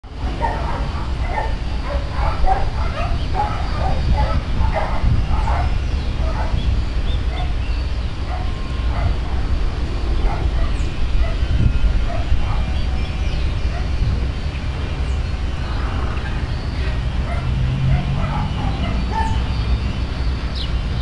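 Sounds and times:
steady low rumble: 0.0 - 21.0
dog barking: 0.3 - 6.7, 7.3 - 7.6, 8.3 - 9.4, 10.2 - 11.5, 12.1 - 12.8, 17.2 - 19.4.

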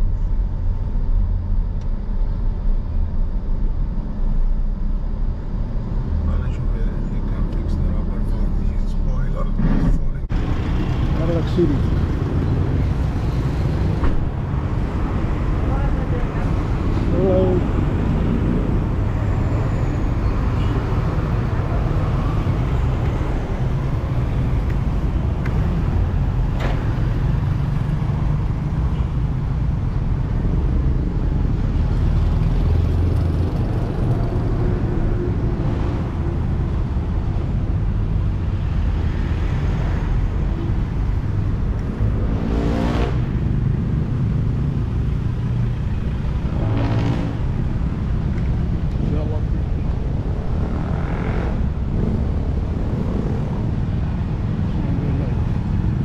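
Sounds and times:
road traffic rumble: 0.0 - 56.0
engine passing: 30.3 - 56.0.

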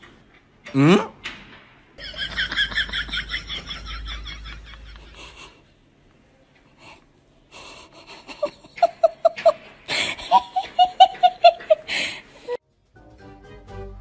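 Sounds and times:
person giggling: 2.0 - 5.6, 7.7 - 12.1
wheezing breaths: 11.8 - 12.6.

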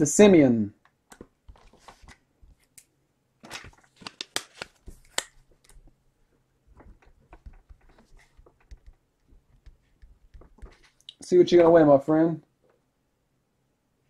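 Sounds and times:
trading cards rustling and clicking: 1.1 - 6.0, 6.7 - 11.8.

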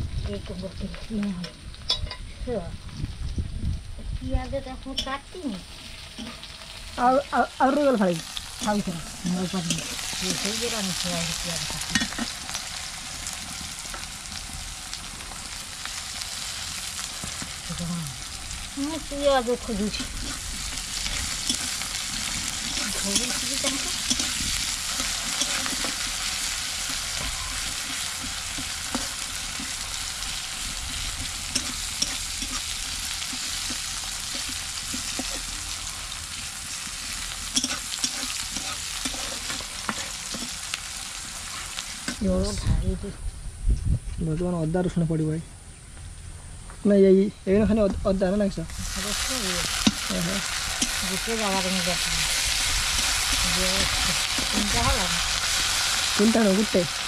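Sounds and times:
onions sizzling in hot oil: 0.0 - 42.6, 48.1 - 57.0
metal spatula scraping a pan: 5.7 - 7.0, 19.7 - 42.2.

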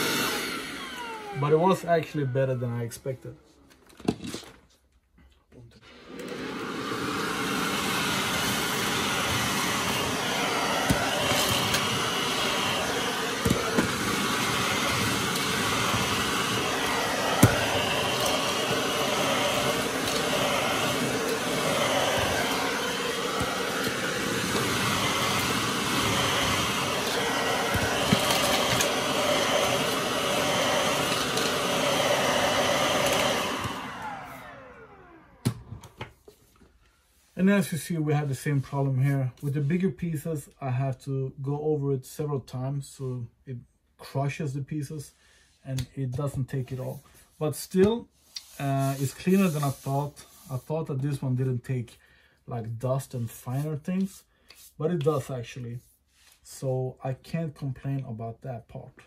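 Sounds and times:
vacuum motor winding down: 0.0 - 2.4, 5.8 - 36.0
cordless vacuum running: 0.0 - 2.6, 5.8 - 36.1.

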